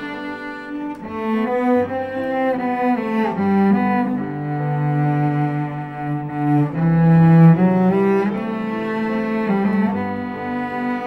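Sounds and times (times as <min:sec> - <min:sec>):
cello bowed slow melody: 0:00.0 - 0:11.0.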